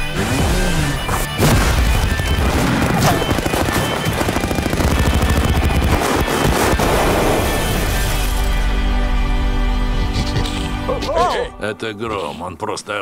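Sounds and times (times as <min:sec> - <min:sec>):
loud trailer music: 0:00.0 - 0:10.9
rapid gunfire: 0:01.4 - 0:08.0.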